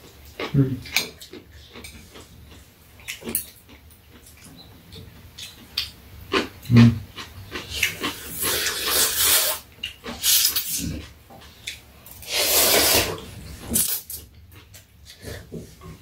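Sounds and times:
soft eating noises: 0.0s - 16.0s
people slurping noodles: 8.1s - 9.6s, 12.2s - 13.3s.

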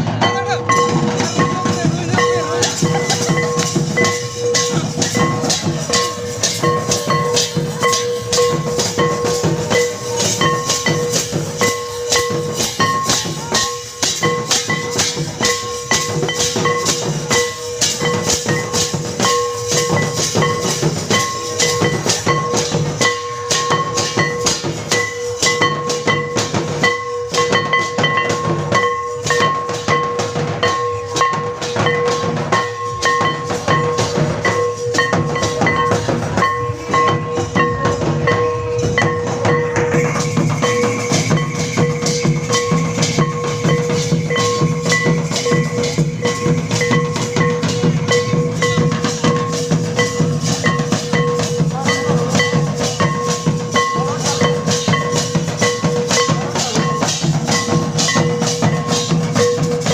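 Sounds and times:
barrel drums beating: 0.0s - 59.9s
metal hand cymbals: 0.0s - 59.9s.

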